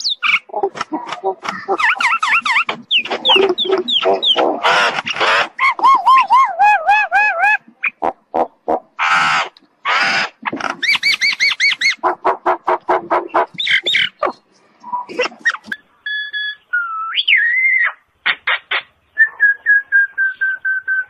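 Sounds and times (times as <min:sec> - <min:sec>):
bird singing varied notes: 0:01.5 - 0:06.4, 0:13.3 - 0:21.0.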